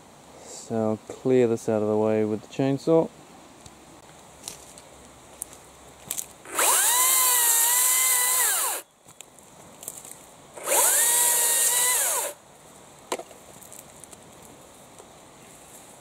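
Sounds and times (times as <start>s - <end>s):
battery chainsaw whining: 6.5s - 8.9s, 10.6s - 12.4s.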